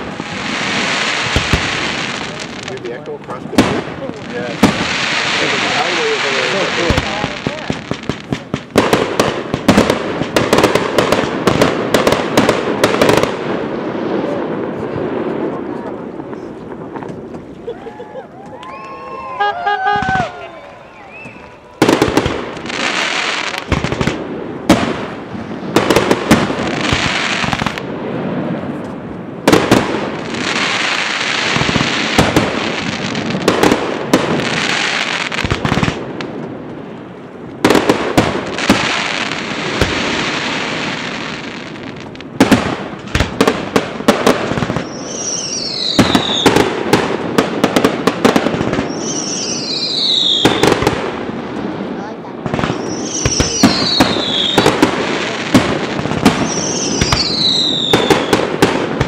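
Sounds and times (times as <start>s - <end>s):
fireworks crackling: 0.0s - 59.0s
falling firework whistles: 17.6s - 23.7s, 44.8s - 46.7s, 48.8s - 50.9s, 52.7s - 54.8s, 56.2s - 58.5s
firework shells bursting: 52.5s - 59.0s.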